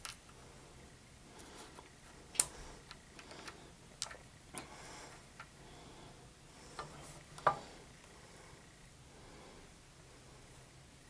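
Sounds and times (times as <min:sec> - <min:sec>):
plastic pieces clicking: 0:02.3 - 0:04.7.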